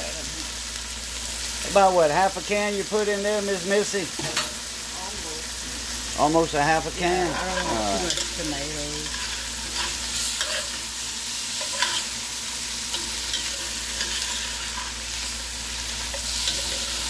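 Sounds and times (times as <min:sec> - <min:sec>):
vegetables sizzling in a pot: 0:00.0 - 0:17.0
metal spoon scraping iron pot: 0:11.6 - 0:12.1.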